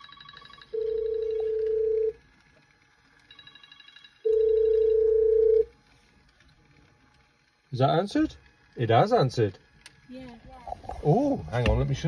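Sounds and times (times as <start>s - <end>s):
loud phone ring tone: 0.0s - 2.4s, 3.2s - 5.8s
faint rapid trilling ringtone: 0.0s - 5.8s.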